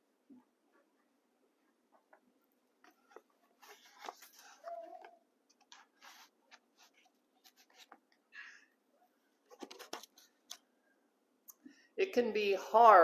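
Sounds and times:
faint rustles and clicks: 0:02.8 - 0:08.2, 0:09.4 - 0:10.7.

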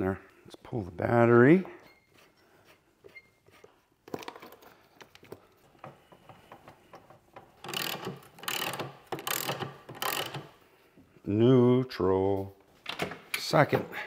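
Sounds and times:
ratchet wrench clicking: 0:07.6 - 0:10.5.

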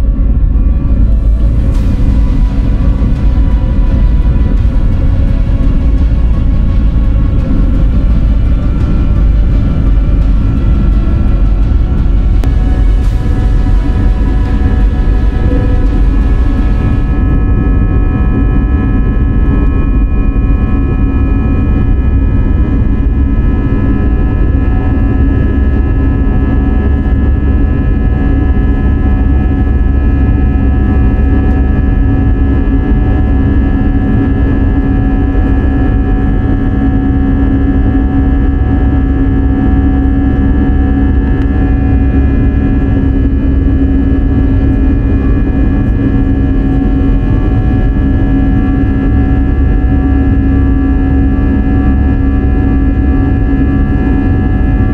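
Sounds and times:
steady tones: 0:00.0 - 0:32.2
jet engines and airflow rushing: 0:00.0 - 0:54.9.

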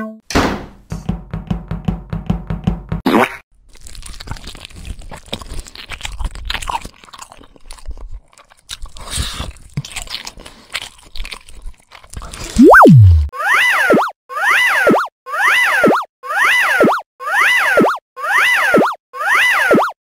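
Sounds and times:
cartoon crunching and chomping: 0:03.1 - 0:13.3
pitched tone gliding upward: 0:12.6 - 0:13.3.

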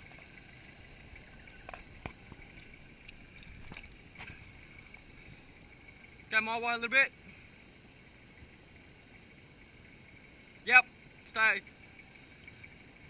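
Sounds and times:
faint clicks and knocks: 0:00.0 - 0:06.2
distant vehicle engine crawling: 0:00.0 - 0:13.0.

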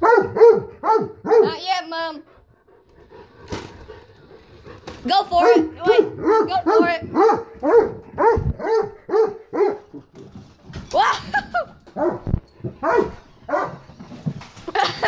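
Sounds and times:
dog barking: 0:00.0 - 0:01.8, 0:05.4 - 0:10.0, 0:12.0 - 0:13.8.

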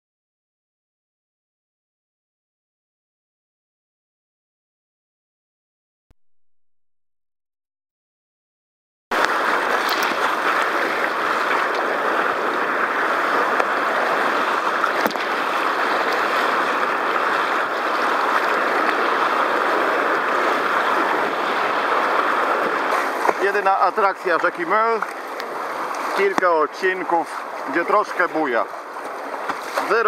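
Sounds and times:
whitewater rushing: 0:09.1 - 0:30.0.

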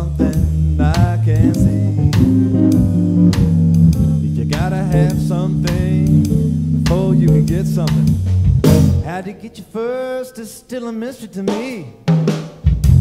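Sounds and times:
electric guitar lines: 0:00.0 - 0:09.0
sustained organ chords: 0:00.0 - 0:09.1
bass notes: 0:00.0 - 0:09.2, 0:12.7 - 0:13.0
drum kit strokes: 0:00.0 - 0:09.2, 0:11.5 - 0:13.0.

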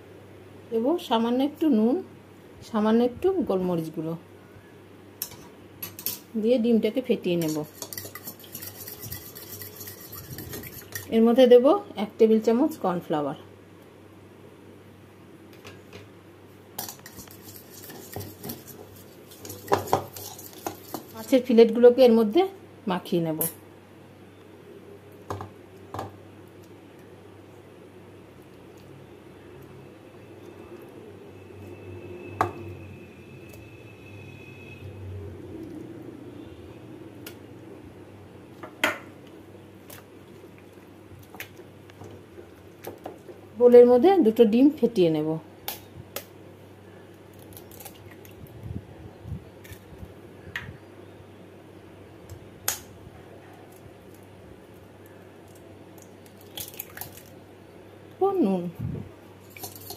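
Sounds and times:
metal spoon clinking in bowl: 0:07.4 - 0:11.1.

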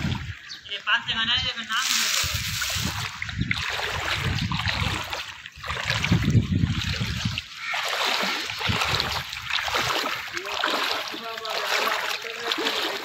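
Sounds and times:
water sloshing around wading person: 0:00.0 - 0:00.8, 0:01.6 - 0:13.0.

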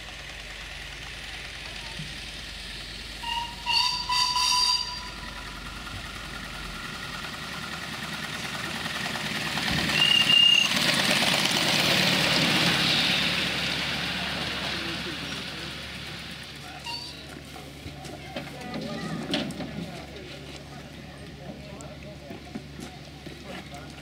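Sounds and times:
steam locomotive whistle toots: 0:03.1 - 0:05.6, 0:09.8 - 0:11.0, 0:16.7 - 0:17.3.

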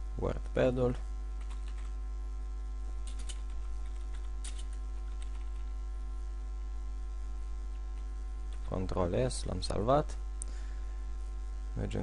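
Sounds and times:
electrical mains hum: 0:00.0 - 0:12.0
keyboard keys clicking: 0:01.4 - 0:01.9, 0:03.0 - 0:05.7.

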